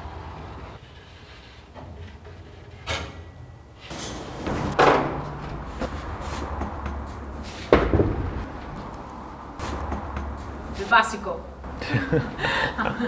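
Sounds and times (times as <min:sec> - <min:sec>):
traffic rumble: 0:00.0 - 0:13.0
wooden furniture knocks: 0:07.7 - 0:08.4.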